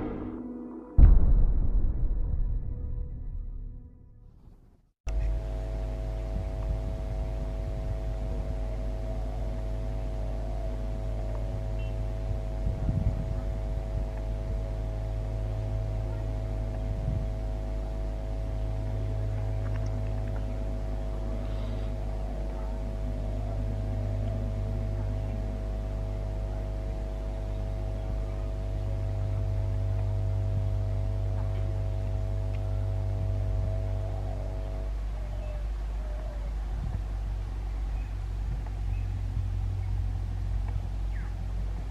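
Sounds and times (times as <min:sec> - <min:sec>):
thump: 0:01.0 - 0:03.7
diesel locomotive engine droning: 0:05.1 - 0:41.9.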